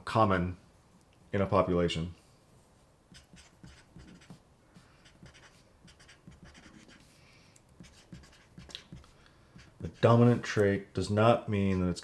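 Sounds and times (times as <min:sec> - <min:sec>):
marker scratching on paper: 0:03.1 - 0:07.2, 0:07.8 - 0:10.4.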